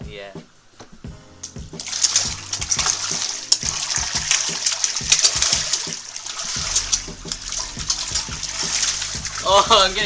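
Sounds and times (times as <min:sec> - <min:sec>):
fish splashing water: 0:01.8 - 0:09.5.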